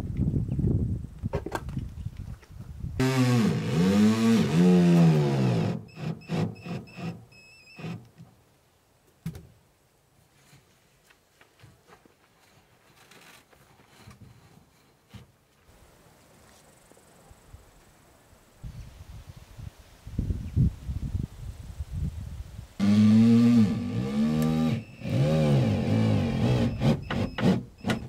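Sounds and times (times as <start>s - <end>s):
cordless drill whirring: 3.0s - 8.0s, 22.8s - 28.0s.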